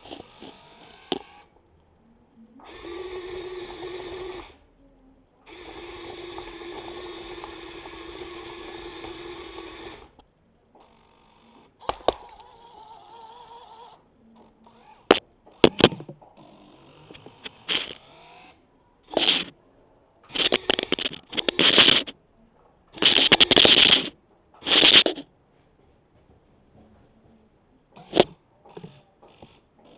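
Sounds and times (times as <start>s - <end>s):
small electric motors whining: 0.0s - 1.6s, 2.6s - 4.6s, 5.4s - 10.2s, 10.8s - 19.6s, 20.3s - 22.2s, 23.0s - 25.2s, 28.0s - 29.9s.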